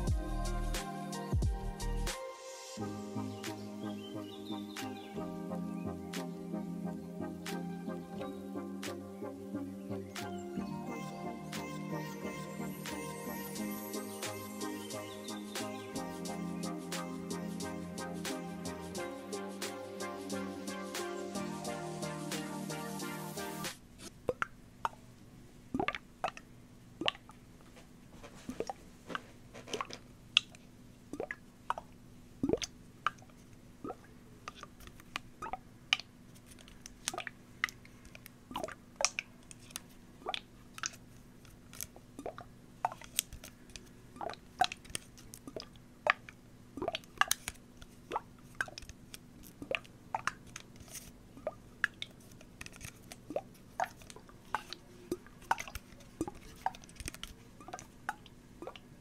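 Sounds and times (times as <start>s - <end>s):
faint steady hum: 2.8s - 59.0s
plastic bottle crinkling: 28.2s - 30.5s, 40.7s - 58.8s.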